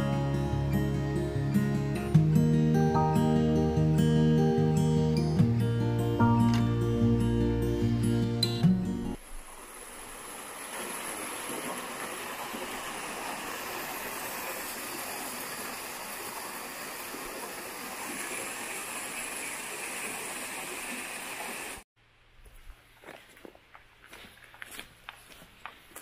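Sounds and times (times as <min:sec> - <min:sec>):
water rushing over a weir: 0:09.2 - 0:21.8.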